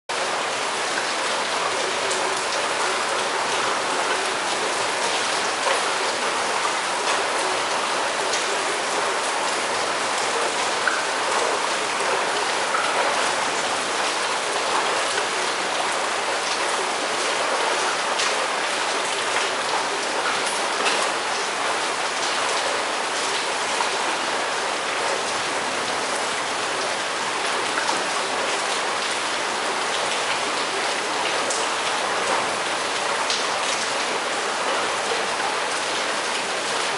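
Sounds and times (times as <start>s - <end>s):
rain splashing on hard surfaces: 0.1s - 36.9s.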